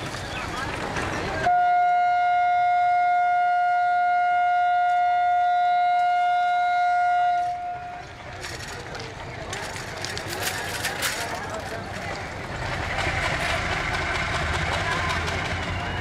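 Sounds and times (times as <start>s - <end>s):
locomotive horn blast: 1.5s - 8.2s.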